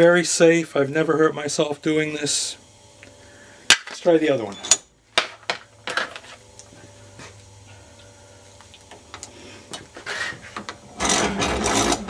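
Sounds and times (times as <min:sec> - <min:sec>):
steady low hum: 0:00.0 - 0:12.0
vise rasping scrape: 0:10.0 - 0:12.0.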